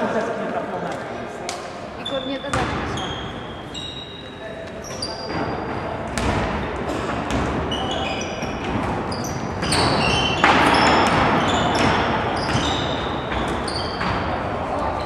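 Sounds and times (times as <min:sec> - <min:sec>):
sneakers squeaking on court: 0:02.0 - 0:14.4
basketball bouncing: 0:02.4 - 0:03.0, 0:05.3 - 0:14.3.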